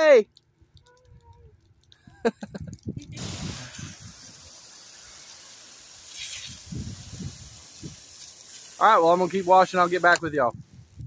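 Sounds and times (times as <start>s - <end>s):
pressure washer spray hissing: 3.2s - 10.3s.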